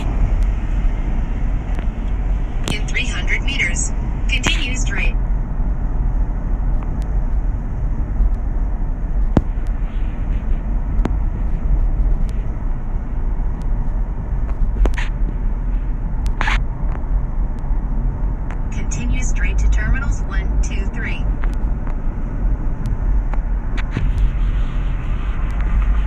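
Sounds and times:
car tyres and engine rumble: 0:00.0 - 0:26.0.

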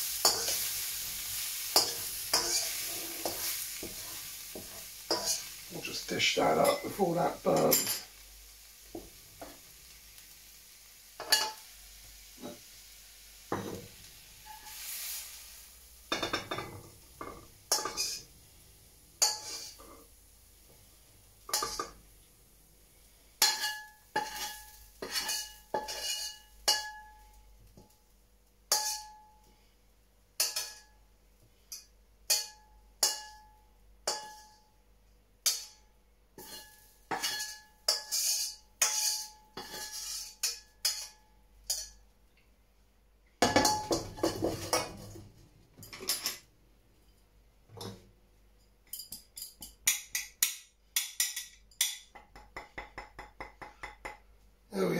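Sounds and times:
wok ringing: 0:00.0 - 0:05.6, 0:06.2 - 0:08.1, 0:11.2 - 0:11.6, 0:14.4 - 0:15.0, 0:16.1 - 0:18.3, 0:19.2 - 0:19.9, 0:23.4 - 0:27.9, 0:28.7 - 0:29.5, 0:30.4 - 0:31.0, 0:31.7 - 0:34.8, 0:35.4 - 0:42.0, 0:43.4 - 0:45.0
metal spatula scraping a wok: 0:00.0 - 0:05.7, 0:11.2 - 0:11.7, 0:13.5 - 0:18.3, 0:19.2 - 0:20.1, 0:23.4 - 0:27.0, 0:28.7 - 0:29.2, 0:36.4 - 0:42.0
light sizzling: 0:00.0 - 0:48.0.

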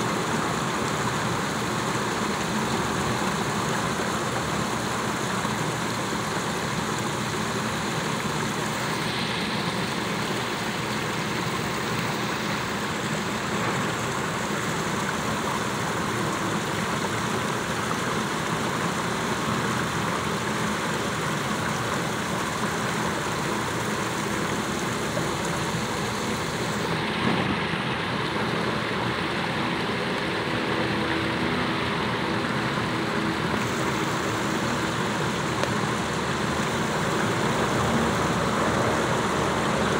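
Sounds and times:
city traffic hum: 0:00.0 - 0:39.9
fountain water splashing: 0:00.0 - 0:39.9.

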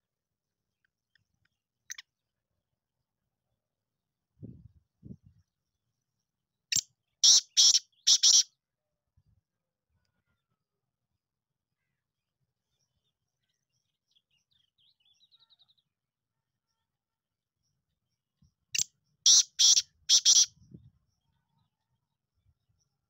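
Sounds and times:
faint high bird chirps: 0:06.0 - 0:08.5, 0:12.7 - 0:17.0, 0:17.6 - 0:23.0.

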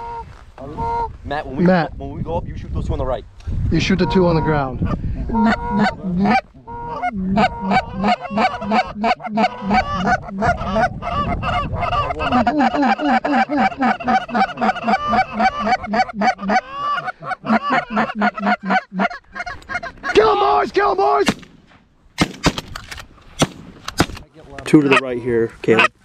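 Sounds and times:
geese honking: 0:00.0 - 0:01.1, 0:03.8 - 0:20.4, 0:24.8 - 0:26.0.

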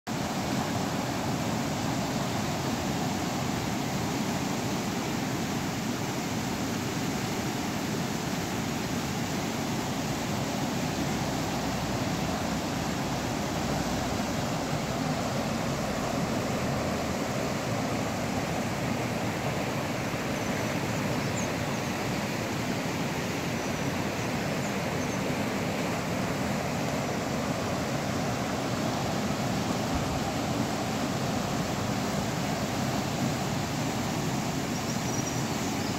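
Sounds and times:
river rushing over rapids: 0:00.1 - 0:35.9.

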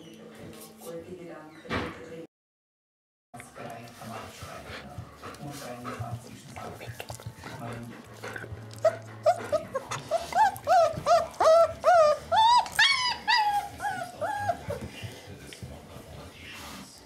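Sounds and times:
puppy whimpering: 0:07.0 - 0:15.1.

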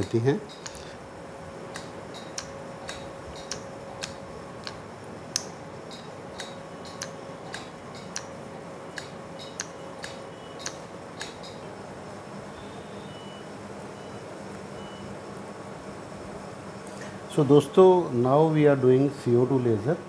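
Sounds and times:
faint steady machine tone: 0:00.0 - 0:20.0
sharp device clicks: 0:00.5 - 0:00.9, 0:01.7 - 0:11.6.

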